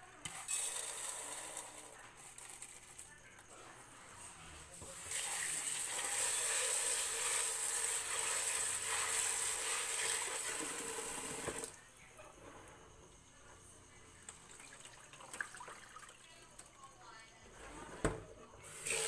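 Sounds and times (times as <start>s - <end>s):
tap water running into container: 4.8s - 11.8s, 14.3s - 16.8s, 18.7s - 19.0s.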